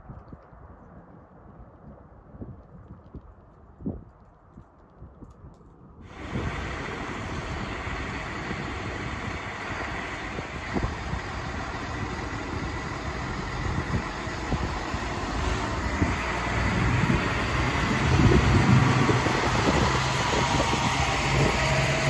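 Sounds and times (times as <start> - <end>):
diesel railcar engine: 6.0 - 22.0.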